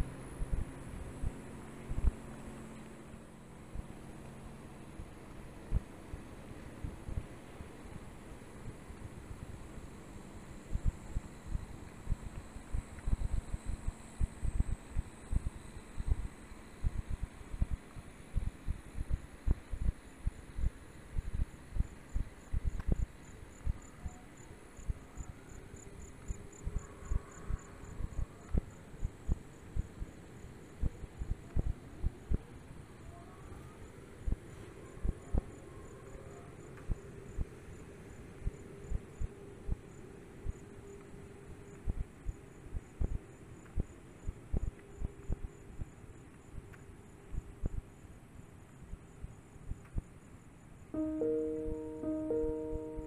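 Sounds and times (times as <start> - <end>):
insects chirping: 7.5 - 53.0
steady high drone: 51.0 - 53.0.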